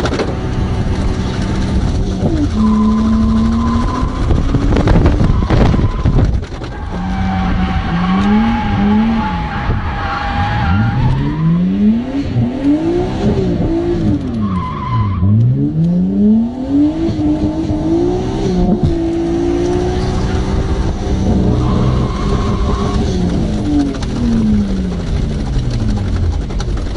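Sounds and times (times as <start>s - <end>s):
car engine revving: 0.0s - 26.9s.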